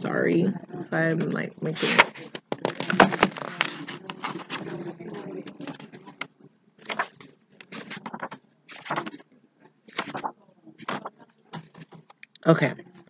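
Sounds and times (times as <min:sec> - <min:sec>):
book pages rustling: 0:01.8 - 0:09.2, 0:09.9 - 0:12.2.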